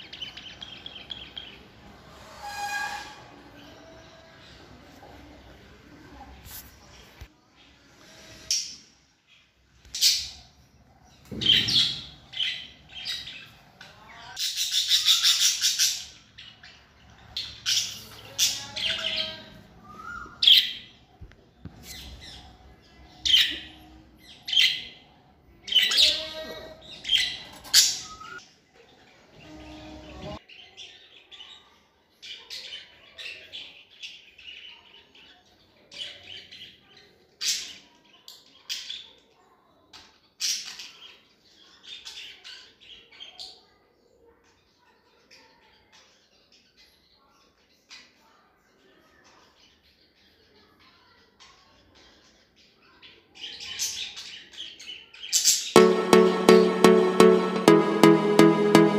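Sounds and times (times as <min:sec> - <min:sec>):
budgerigars chirping and squawking: 0:11.4 - 0:13.6, 0:14.2 - 0:19.5.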